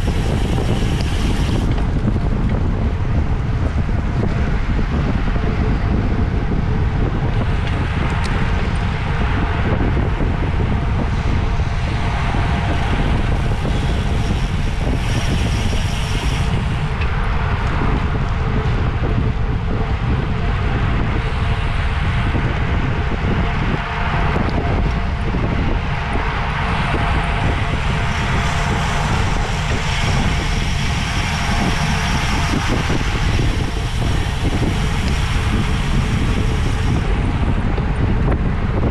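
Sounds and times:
wind buffeting microphone: 0:00.0 - 0:38.9.

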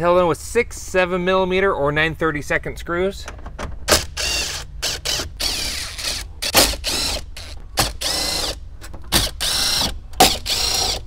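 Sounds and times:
cordless drill whining: 0:04.0 - 0:08.6, 0:09.2 - 0:11.0.

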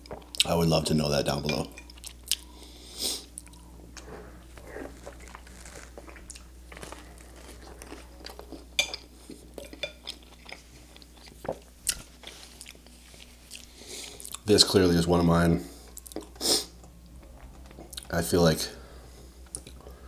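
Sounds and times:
chewing and crunching food: 0:01.7 - 0:02.6, 0:03.2 - 0:14.5, 0:15.9 - 0:18.2.

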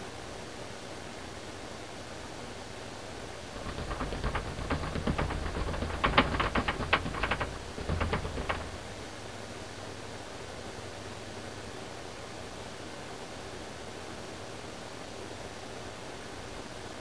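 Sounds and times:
paintbrush tapping on canvas: 0:03.6 - 0:08.9.

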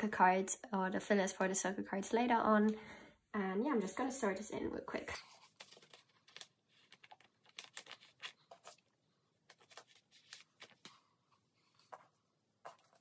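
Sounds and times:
plastic sleeves rustling: 0:04.9 - 0:13.0.

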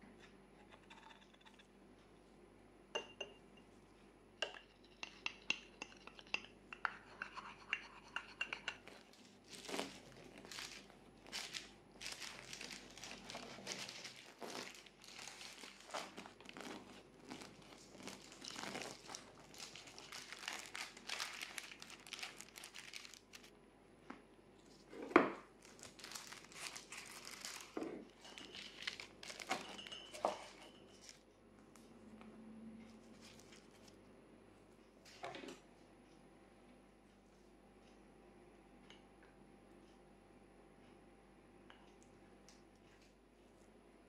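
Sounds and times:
baking paper crinkling: 0:08.9 - 0:23.5, 0:24.7 - 0:31.2, 0:33.0 - 0:34.0.

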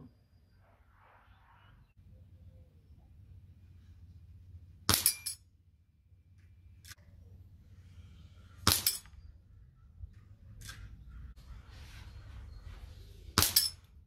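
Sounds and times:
pellet clinking on steel target: 0:04.9 - 0:05.5, 0:08.6 - 0:09.2, 0:13.3 - 0:14.0
air rifle shots: 0:08.6 - 0:09.1, 0:13.4 - 0:13.8.

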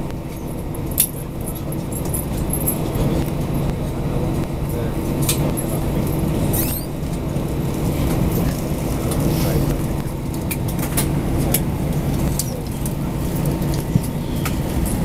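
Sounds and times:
jet engines idling hum: 0:00.0 - 0:15.0.

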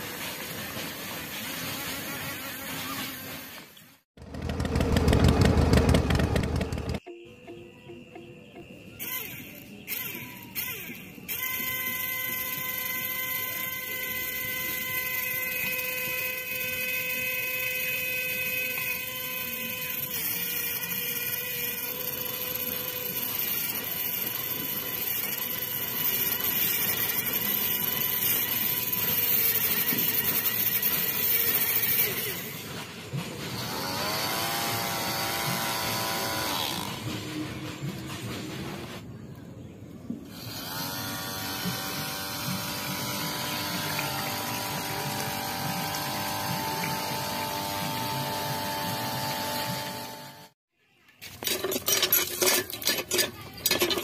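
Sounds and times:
small electric motor whining: 0:08.9 - 0:37.1, 0:40.2 - 0:50.6.

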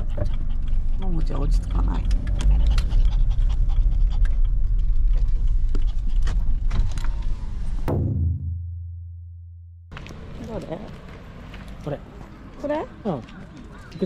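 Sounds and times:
dog panting: 0:00.0 - 0:06.8
engine rumble: 0:00.0 - 0:14.0.

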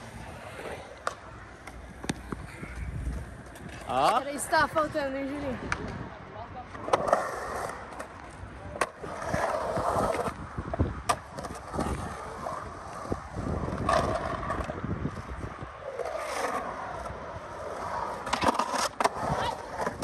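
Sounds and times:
skateboard wheels rolling on concrete: 0:00.0 - 0:20.0
skateboard clacks: 0:00.7 - 0:04.2, 0:16.1 - 0:20.0.

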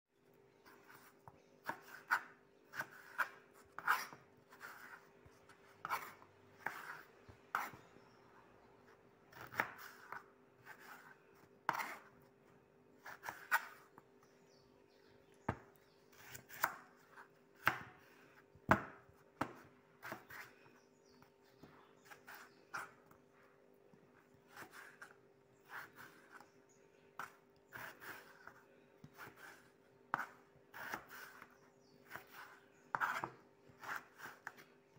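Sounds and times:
knife slicing potatoes on board: 0:09.3 - 0:11.1, 0:11.7 - 0:12.1, 0:16.1 - 0:18.0, 0:18.7 - 0:20.5, 0:27.2 - 0:34.7.

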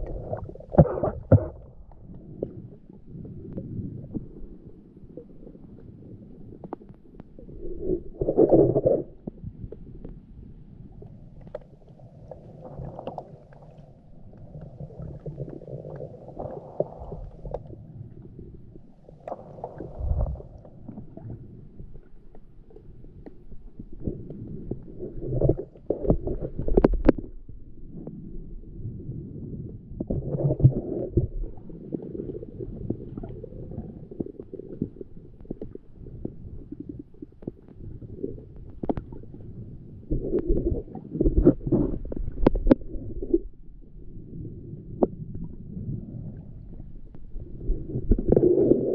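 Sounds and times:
underwater bumps: 0:00.0 - 0:04.6, 0:06.5 - 0:10.1, 0:19.2 - 0:22.4, 0:29.8 - 0:43.7
underwater rumbling of moving water: 0:00.0 - 0:48.9.

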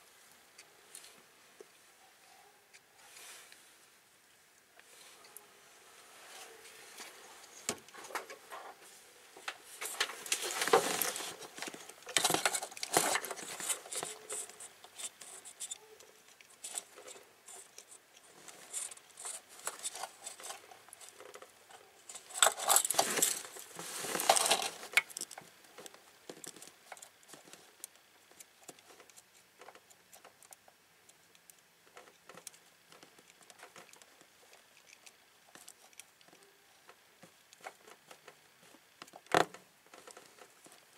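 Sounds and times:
hands rustling among wires: 0:04.9 - 0:30.5.

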